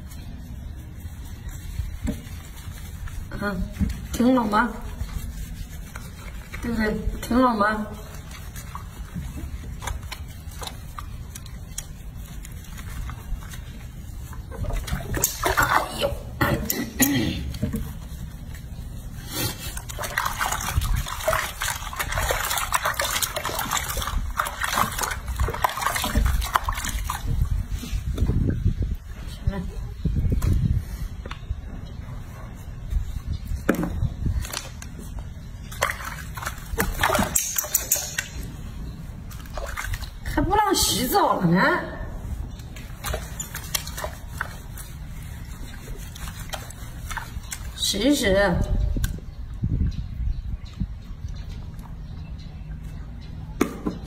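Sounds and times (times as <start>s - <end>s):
soft rubbing of wet fur: 0.0s - 16.4s, 17.4s - 49.0s
small water splashes: 3.6s - 16.4s, 19.5s - 27.9s, 35.5s - 41.2s, 42.7s - 47.9s.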